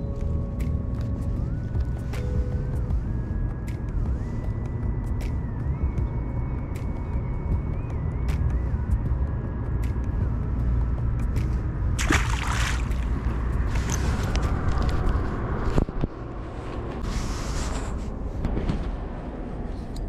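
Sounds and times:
low rumble of road traffic: 0:00.0 - 0:20.0
fish splashing into water: 0:12.0 - 0:13.2.

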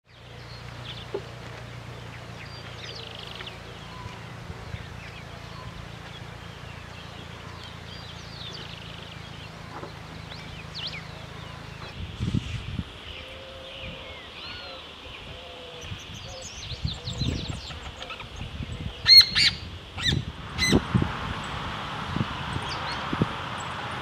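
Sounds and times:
birds whistling and chirping: 0:02.0 - 0:20.9.

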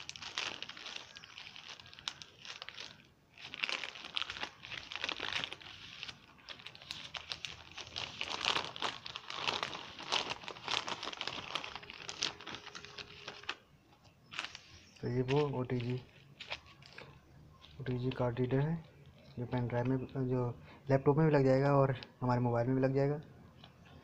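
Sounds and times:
plastic bag crinkling: 0:00.0 - 0:13.6, 0:14.2 - 0:19.6.

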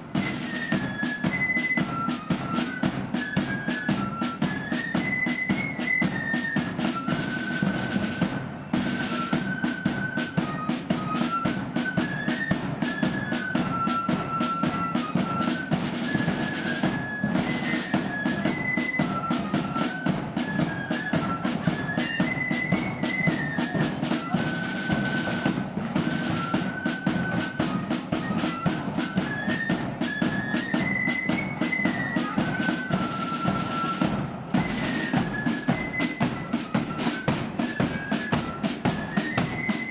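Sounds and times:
flutes playing melody: 0:00.0 - 0:39.9
side drum rolls: 0:00.0 - 0:39.9.

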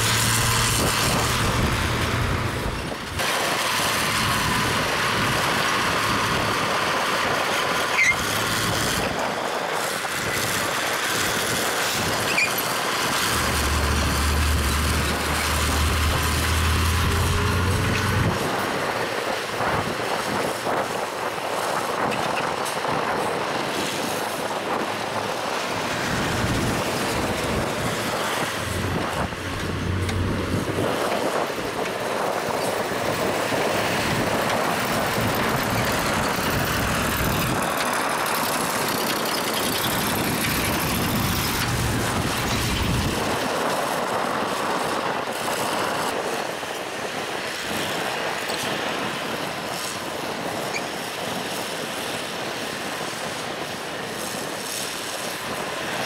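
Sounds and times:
low engine rumble: 0:00.0 - 0:03.2, 0:12.7 - 0:18.8, 0:25.2 - 0:31.9, 0:33.0 - 0:43.2
heavy diesel machinery running: 0:00.0 - 0:22.0, 0:22.6 - 0:56.0.

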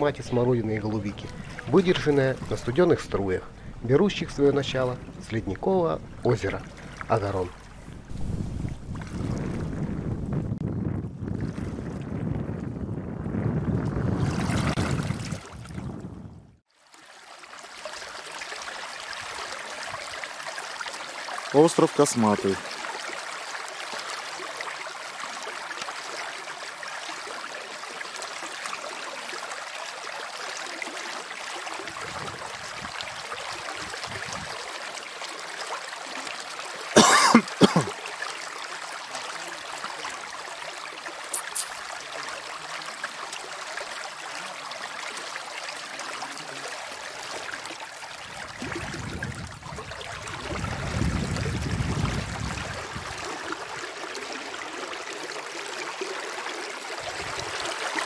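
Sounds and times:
low rumble: 0:02.3 - 0:14.2.

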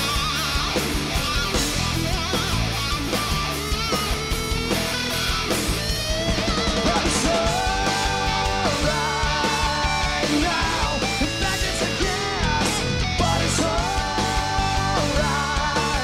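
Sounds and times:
distorted electric guitars: 0:00.0 - 0:16.0
drums: 0:00.0 - 0:16.0
man singing lead vocal: 0:06.6 - 0:16.0.

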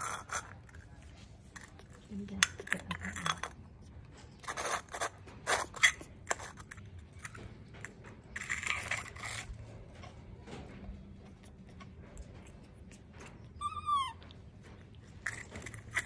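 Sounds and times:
plastic toy scraping on tiled floor: 0:00.0 - 0:02.0, 0:02.6 - 0:10.1.

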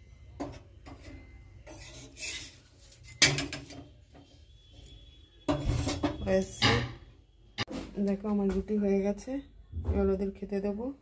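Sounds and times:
metal tongs scraping on griddle: 0:01.0 - 0:03.8
sharp metal clank: 0:05.5 - 0:07.0.

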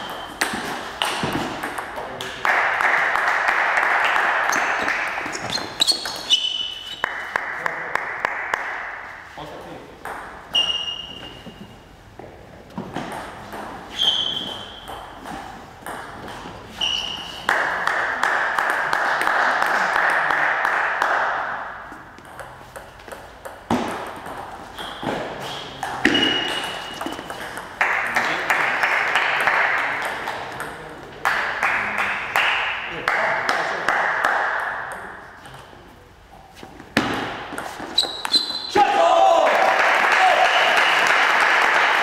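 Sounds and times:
table tennis balls clicking: 0:04.5 - 0:07.2.

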